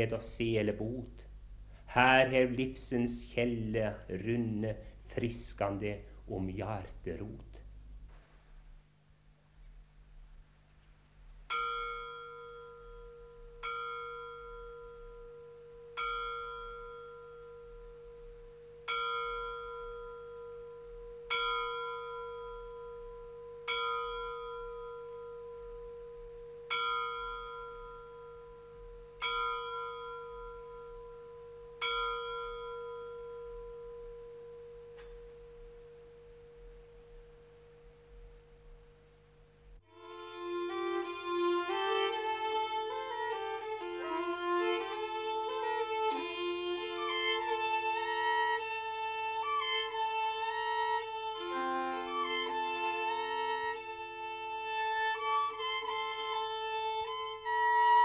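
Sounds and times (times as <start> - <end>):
church bell tolling: 11.5 - 35.9.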